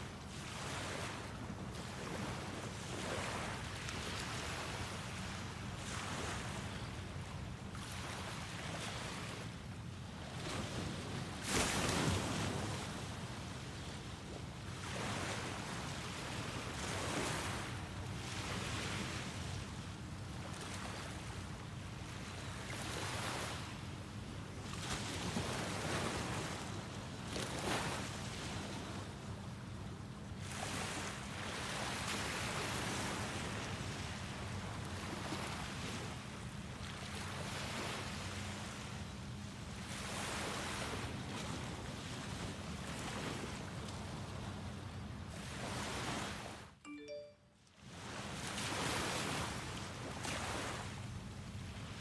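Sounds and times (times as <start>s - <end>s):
small waves washing up sand: 0.0s - 9.5s, 10.1s - 13.6s, 30.4s - 38.9s, 39.7s - 44.6s, 45.3s - 46.6s, 48.0s - 52.0s.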